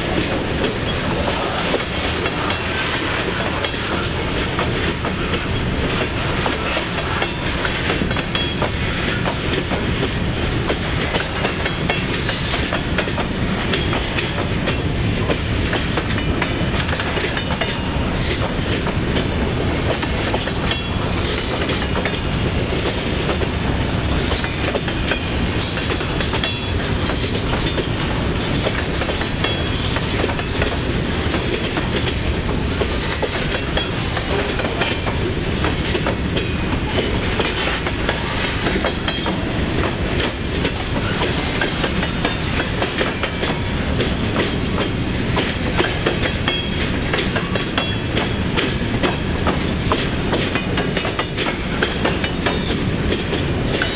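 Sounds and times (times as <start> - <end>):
freight train rumbling past: 0.0 - 53.9
wheels clacking over rail joints: 0.0 - 53.9.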